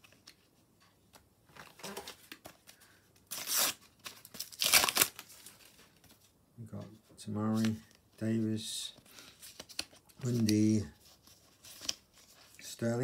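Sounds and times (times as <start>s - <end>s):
wrapper ripping: 3.3s - 5.7s
packet wrapper rustling: 3.3s - 5.8s
wrapper crinkling: 3.3s - 5.8s.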